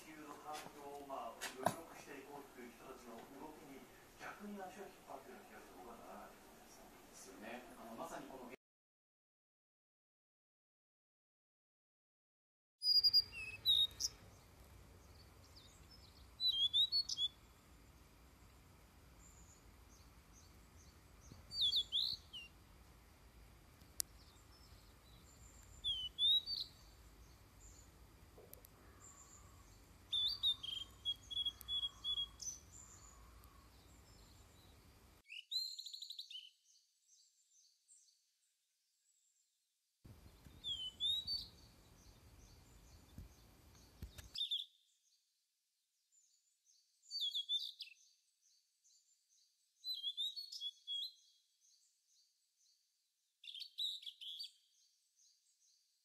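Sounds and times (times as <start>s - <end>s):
faint background noise: 0.0s - 8.6s, 12.8s - 38.1s, 40.1s - 45.1s
flycatcher song: 12.8s - 18.0s, 19.2s - 22.6s, 24.0s - 28.1s, 28.7s - 38.2s, 40.2s - 45.2s, 46.1s - 52.8s, 53.4s - 55.9s.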